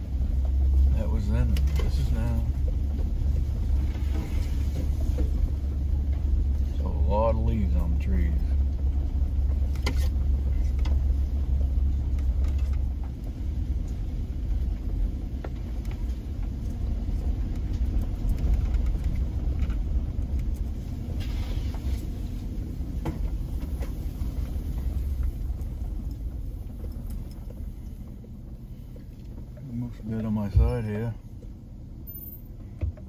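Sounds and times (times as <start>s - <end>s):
truck engine and tyres rumbling: 0.0s - 33.0s.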